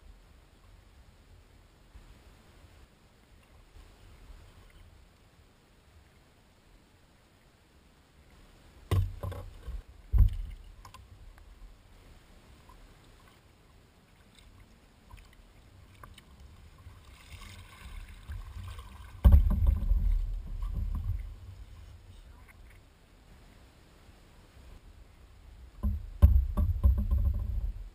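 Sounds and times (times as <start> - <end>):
knocks on kayak hull: 8.9 - 10.6, 19.2 - 21.3, 25.8 - 27.7
low rumbling: 17.9 - 23.7, 24.4 - 27.9.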